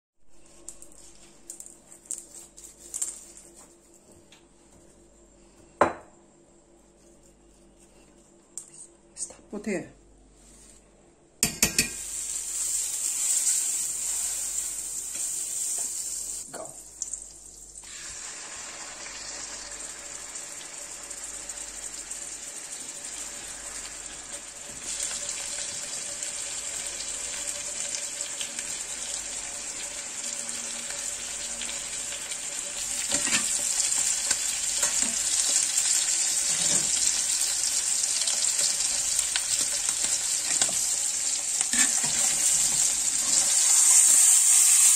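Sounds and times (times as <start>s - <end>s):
steak frying: 11.4s - 44.9s
butter sizzling in a skillet: 11.7s - 44.9s.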